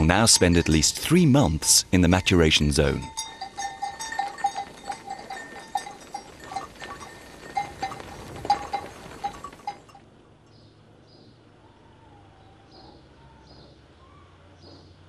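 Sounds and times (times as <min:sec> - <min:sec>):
sheep bells clanking: 0:00.0 - 0:10.1
faint bird chirps: 0:10.5 - 0:15.0.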